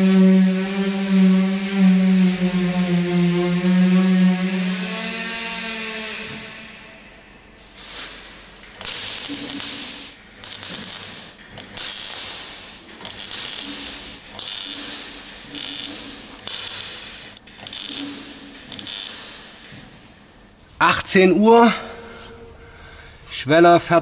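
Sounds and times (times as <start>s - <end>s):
low hum: 0.0s - 20.7s
welder arc crackle: 7.8s - 20.0s.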